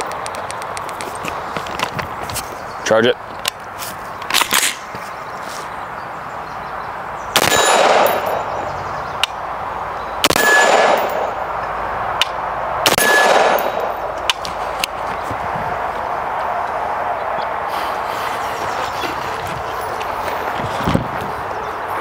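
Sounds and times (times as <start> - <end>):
rifle shots with echo: 7.4 - 8.6, 10.2 - 11.4, 12.8 - 14.2.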